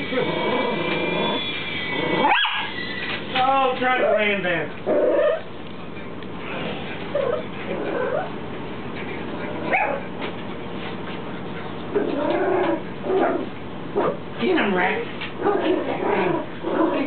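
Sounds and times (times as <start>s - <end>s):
dogs whining and yipping: 0.0s - 3.2s, 4.9s - 5.5s, 7.1s - 8.4s, 9.6s - 10.1s.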